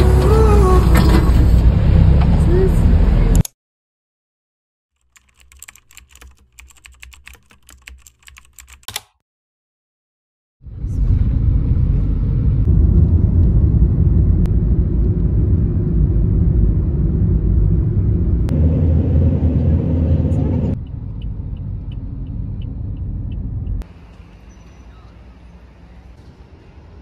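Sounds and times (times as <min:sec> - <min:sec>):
car road rumble: 0:00.0 - 0:03.4, 0:10.6 - 0:27.0
keyboard typing clicks: 0:05.0 - 0:09.2.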